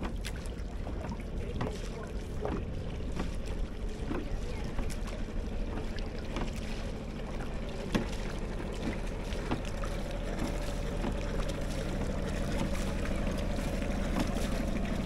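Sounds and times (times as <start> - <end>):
boat motor running: 0.0 - 15.0.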